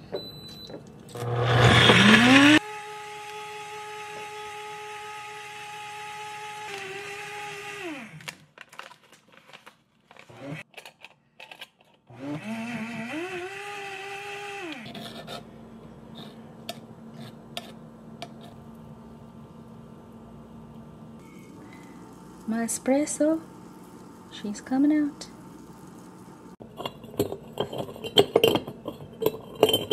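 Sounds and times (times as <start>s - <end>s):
blender motor running: 1.1s - 8.3s, 10.3s - 10.6s, 12.1s - 14.9s
faint steady hum: 15.4s - 29.9s.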